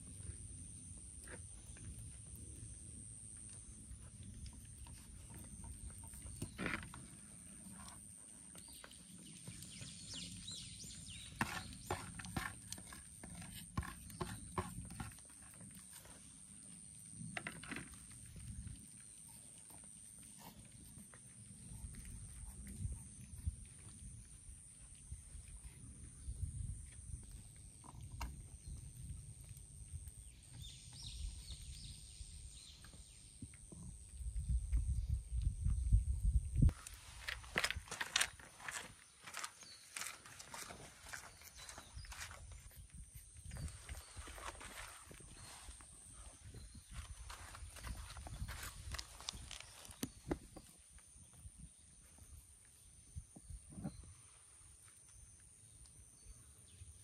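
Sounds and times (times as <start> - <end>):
cats eating: 0.0 - 52.9
cats crunching food: 1.2 - 26.1.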